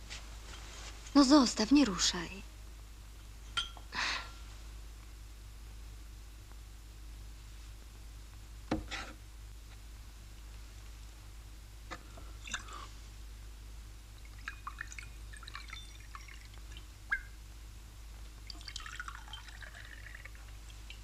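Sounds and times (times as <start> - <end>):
low steady hum: 0.0 - 21.0
glass clinking: 3.5 - 3.9, 14.4 - 16.5
liquid pouring into glasses: 12.4 - 12.9, 14.2 - 17.2, 18.4 - 21.0.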